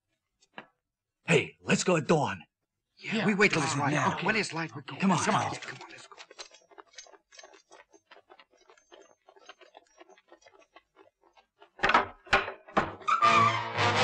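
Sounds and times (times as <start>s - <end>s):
dramatic music: 13.1s - 14.0s.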